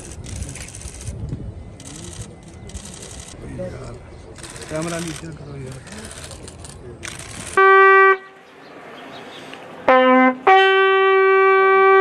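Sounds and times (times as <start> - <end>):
bugle call: 7.6 - 8.4, 9.9 - 12.0.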